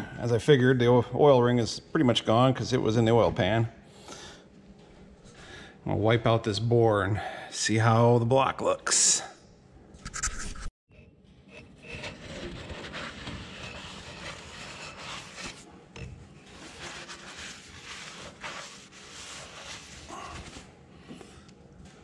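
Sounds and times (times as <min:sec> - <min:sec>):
rag rubbing inside metal cylinder: 0:11.4 - 0:15.7, 0:16.4 - 0:20.6.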